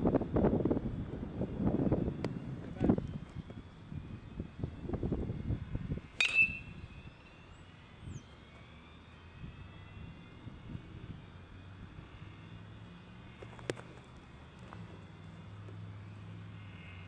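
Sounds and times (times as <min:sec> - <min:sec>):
wind on microphone: 0:00.0 - 0:07.2
bat cracking a ball: 0:06.2 - 0:06.8.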